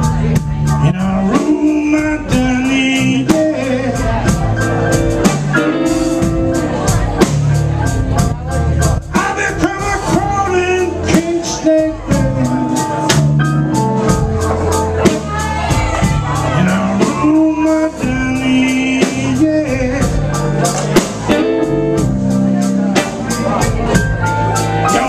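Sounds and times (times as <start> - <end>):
man singing into a microphone: 0.0 - 4.9, 9.0 - 13.0, 15.0 - 21.0
blues band playing: 0.0 - 25.0.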